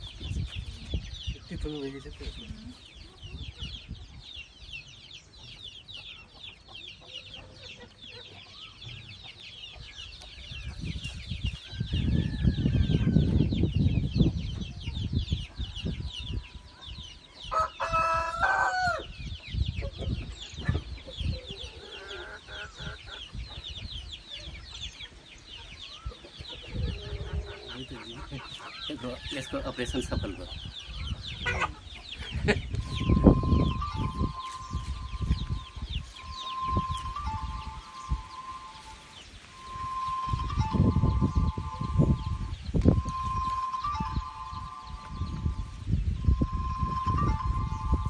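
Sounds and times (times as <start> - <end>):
high twittering: 32.2 - 48.0.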